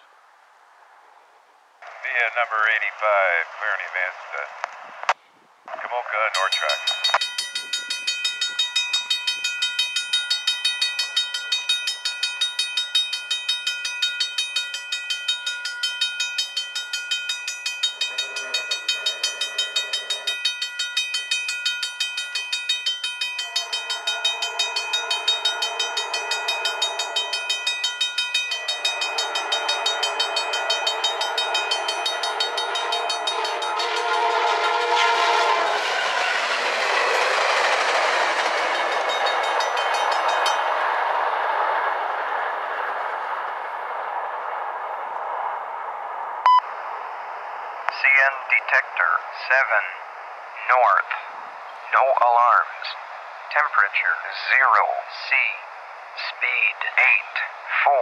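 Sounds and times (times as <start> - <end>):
train rumbling past: 5.7 - 58.0
level crossing bell ringing: 6.4 - 34.9
locomotive horn blasts: 23.4 - 36.3.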